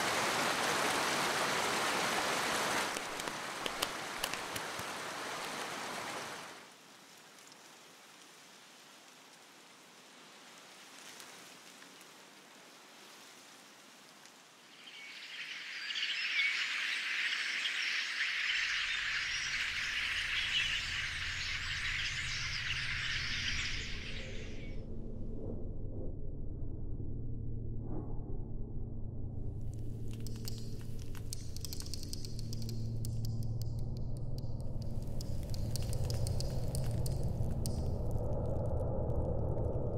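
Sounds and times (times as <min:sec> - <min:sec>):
high chirring insect chorus: 0:14.4 - 0:24.8, 0:29.9 - 0:33.6, 0:34.4 - 0:38.4.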